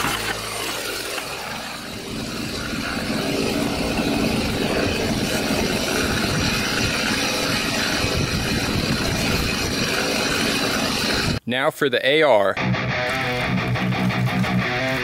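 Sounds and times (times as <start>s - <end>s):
chainsaw idling: 0.0s - 11.4s.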